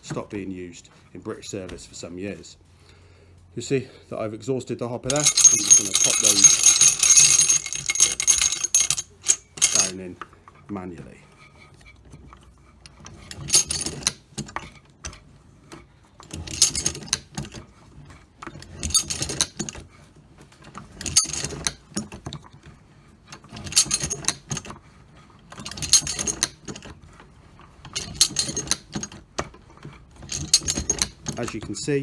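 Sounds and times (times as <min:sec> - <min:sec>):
metallic clinking of cartridges: 0:05.1 - 0:10.0, 0:13.4 - 0:14.1.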